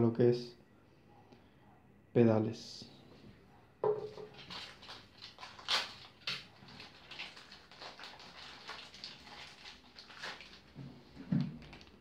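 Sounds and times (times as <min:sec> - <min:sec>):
plastic bags crinkling: 0:04.0 - 0:12.0.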